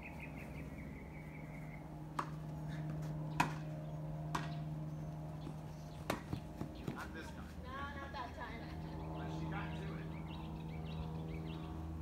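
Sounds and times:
steady low hum: 0:00.0 - 0:12.0
ball being struck: 0:02.1 - 0:02.4, 0:03.4 - 0:03.7, 0:04.3 - 0:04.6, 0:06.0 - 0:06.4.

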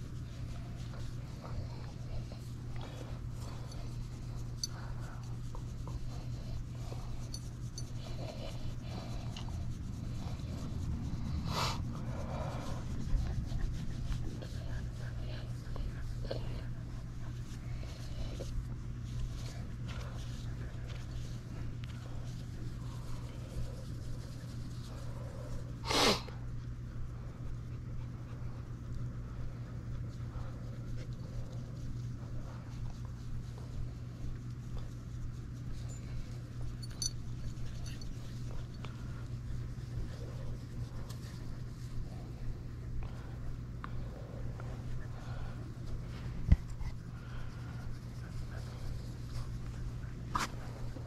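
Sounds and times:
hands scratching dog fur: 0:00.0 - 0:51.0
steady low hum: 0:00.0 - 0:51.0
person sneezing: 0:25.8 - 0:26.3.

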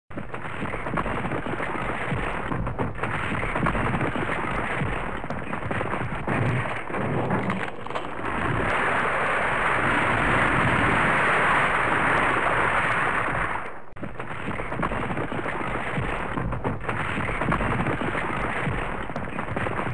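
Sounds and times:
earthquake rumble with crackling: 0:00.1 - 0:19.9
steady rushing noise: 0:00.6 - 0:13.9.

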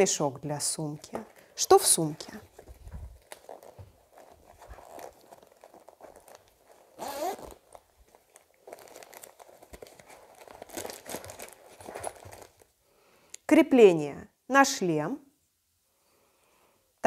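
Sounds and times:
fabric bag rustling: 0:00.7 - 0:12.8.

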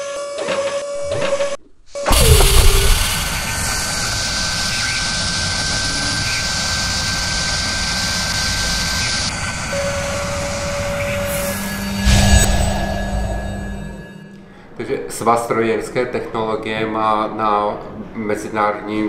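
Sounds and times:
thin high whine: 0:00.8 - 0:14.9
heavy hit with falling tone: 0:02.1 - 0:04.7, 0:10.9 - 0:14.5
jet-like rushing noise: 0:02.1 - 0:14.3
low steady tone: 0:09.8 - 0:14.6.

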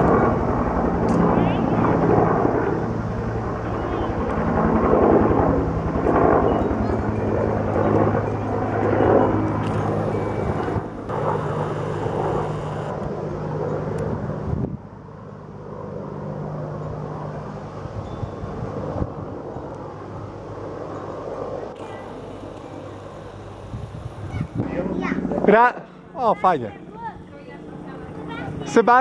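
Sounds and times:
helicopter rotor beating: 0:00.0 - 0:14.3, 0:18.6 - 0:29.0
engine hum: 0:07.6 - 0:13.6, 0:19.7 - 0:25.4.

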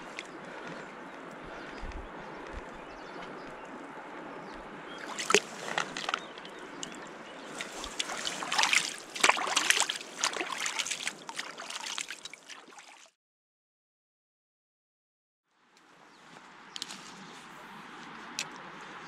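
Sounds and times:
hands splashing in water: 0:05.0 - 0:13.1.

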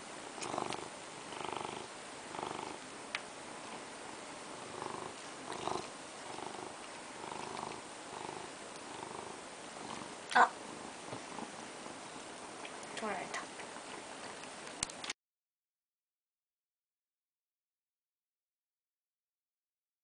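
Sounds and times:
cat purring: 0:00.3 - 0:14.8.

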